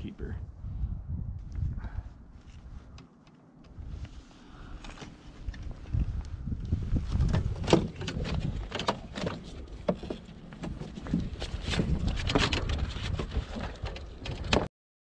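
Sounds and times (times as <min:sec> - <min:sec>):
wind buffeting microphone: 0:00.0 - 0:03.0, 0:03.7 - 0:14.7
fishing gear clicks and knocks: 0:07.1 - 0:14.7.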